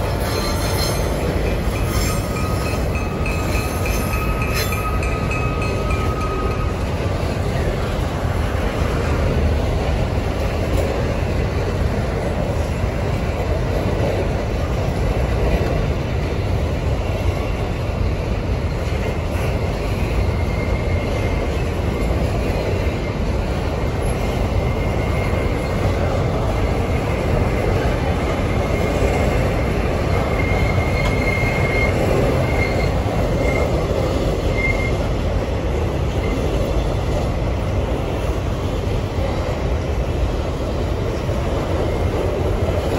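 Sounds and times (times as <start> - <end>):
high wheel squeal: 0.0 - 6.8, 28.5 - 35.1
train wheels rumbling on rail: 0.0 - 42.9.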